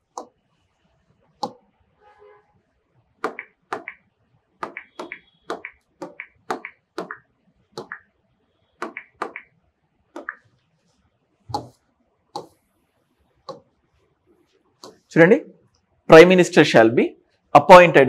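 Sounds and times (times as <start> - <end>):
fingertip taps on touchscreen: 3.2 - 4.0, 4.6 - 7.2, 7.8 - 8.1, 8.8 - 9.5, 10.2 - 10.4, 11.5 - 11.8, 12.4 - 12.6.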